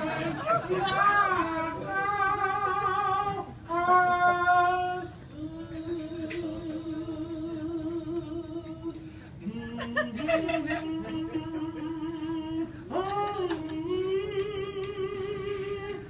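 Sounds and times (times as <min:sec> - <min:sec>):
person singing operatically: 0:00.0 - 0:16.0.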